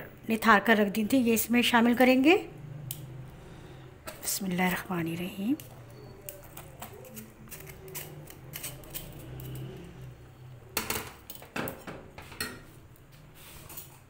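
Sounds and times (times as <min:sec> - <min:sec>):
metal spoon clinking and scraping: 0:04.0 - 0:12.9, 0:13.5 - 0:14.0.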